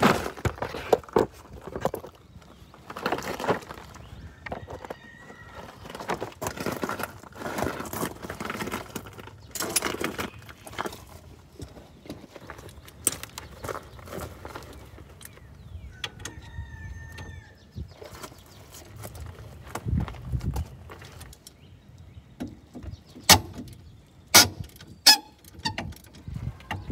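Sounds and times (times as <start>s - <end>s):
rustling and shuffling movement: 0.0s - 15.9s, 17.6s - 21.7s.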